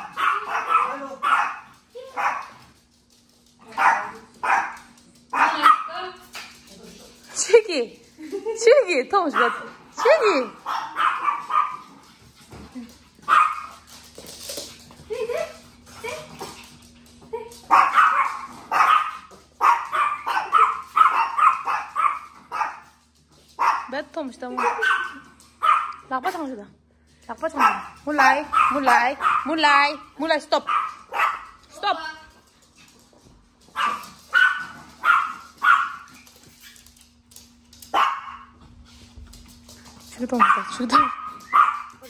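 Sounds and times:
small dog barking: 0.0s - 2.6s, 3.7s - 6.0s, 9.3s - 11.9s, 13.2s - 13.8s, 17.7s - 22.9s, 23.6s - 26.1s, 27.6s - 29.7s, 30.6s - 31.6s, 33.7s - 36.2s, 37.9s - 38.6s, 40.4s - 42.0s.

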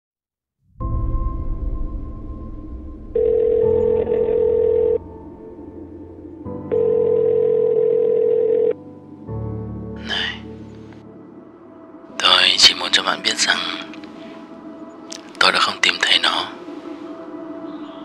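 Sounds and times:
ambient music: 0.6s - 18.0s
telephone ringing tone: 3.2s - 5.0s, 6.7s - 8.8s.

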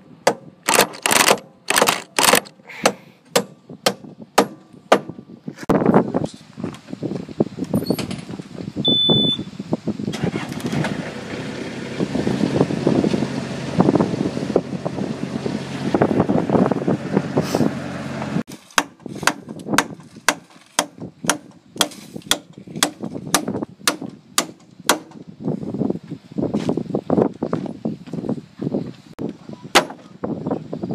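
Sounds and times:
hammer blows on wood: 2.7s - 5.2s
loader engine running: 10.1s - 18.5s.

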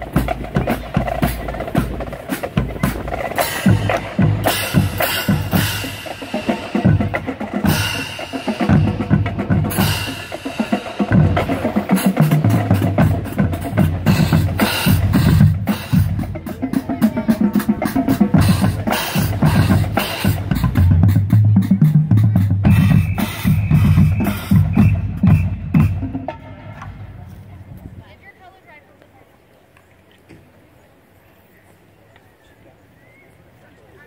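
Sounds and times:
snare drums: 0.0s - 27.2s
marching bass drums: 0.0s - 28.1s.

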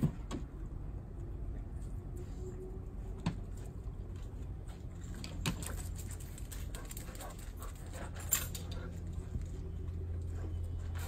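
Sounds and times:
steady low hum: 0.0s - 11.0s
dogs clicking and jingling on concrete: 3.6s - 11.0s.

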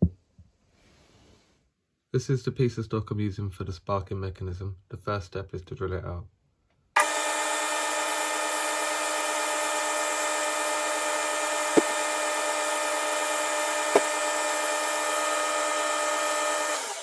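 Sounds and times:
short knocks: 13.9s - 14.2s.

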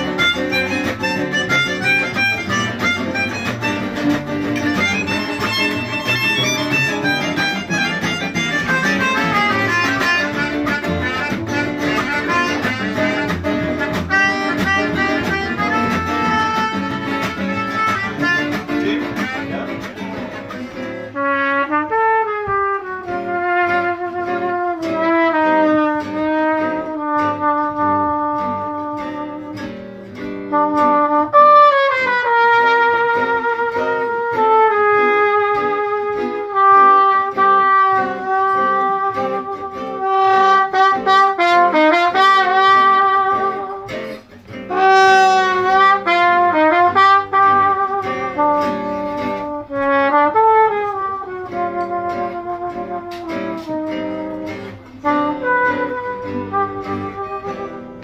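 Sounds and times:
accordion: 0.0s - 21.4s
melodica lead: 0.0s - 23.4s
acoustic guitars strumming: 0.0s - 58.0s
clarinet: 0.0s - 58.0s
trumpet: 0.0s - 58.0s.

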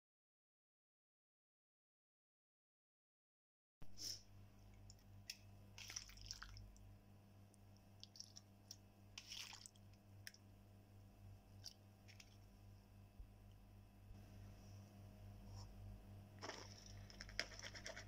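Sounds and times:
steady low hum: 3.9s - 18.0s.

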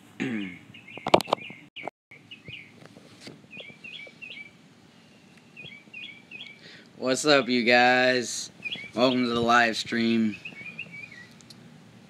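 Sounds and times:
bird chirping: 0.4s - 2.8s, 3.4s - 7.7s, 8.4s - 11.5s.

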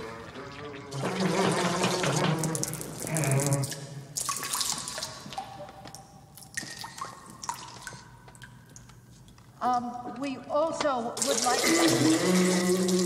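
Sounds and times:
dripping: 0.0s - 9.5s, 11.2s - 13.0s
urine splashing into toilet: 0.2s - 5.5s, 11.2s - 13.0s.

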